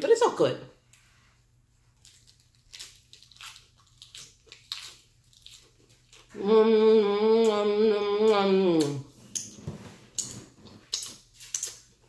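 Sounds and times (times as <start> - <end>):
chewing crisp lettuce: 1.9 - 6.4, 8.2 - 12.0.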